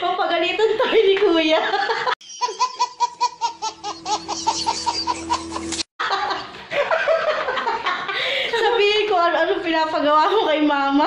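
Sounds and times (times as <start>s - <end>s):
adults laughing: 1.7s - 8.7s
baby laughing: 2.2s - 5.9s.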